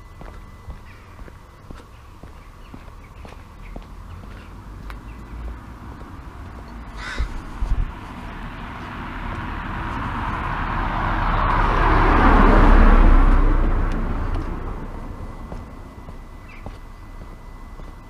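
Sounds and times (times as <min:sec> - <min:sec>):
bird calling: 0:00.6 - 0:05.5, 0:06.8 - 0:07.5, 0:16.3 - 0:18.0
car passing: 0:03.6 - 0:18.0.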